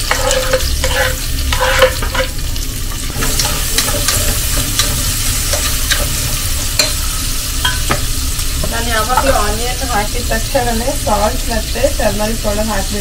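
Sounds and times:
wooden spatula scraping pot: 0.0s - 2.4s
onions sizzling in oil: 0.0s - 13.0s.

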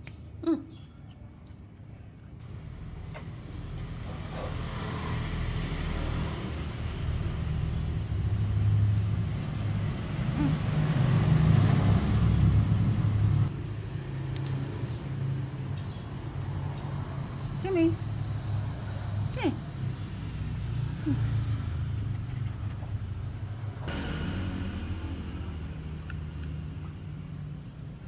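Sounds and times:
vehicle engine drone: 2.5s - 28.0s.

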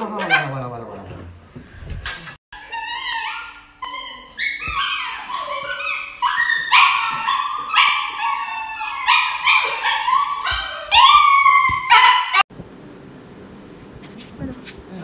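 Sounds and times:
dog whimpering yelps: 2.6s - 12.4s.

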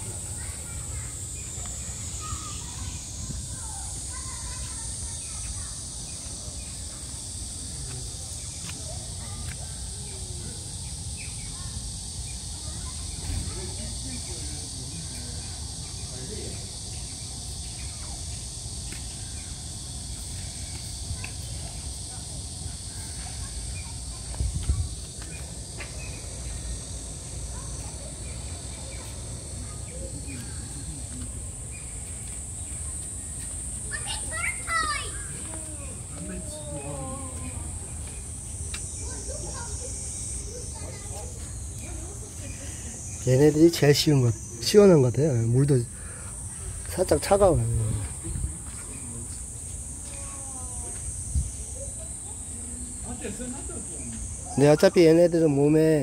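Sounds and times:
faint distant voices: 0.0s - 56.0s
high-pitched hiss: 0.0s - 56.0s
high-pitched insect chorus: 0.0s - 56.0s.

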